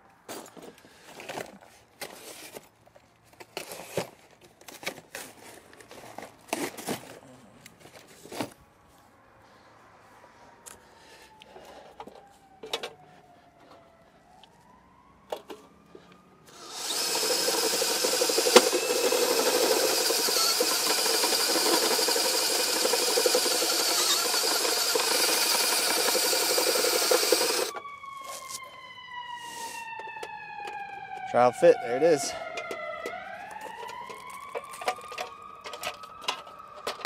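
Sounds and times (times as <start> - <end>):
drill grinding through sheet metal: 16.5 - 27.7
handling knocks and clicks: 32.5 - 37.0.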